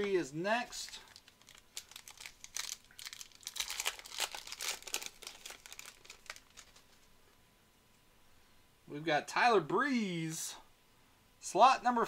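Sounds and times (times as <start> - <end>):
foil wrapper crinkling: 0.7 - 7.1.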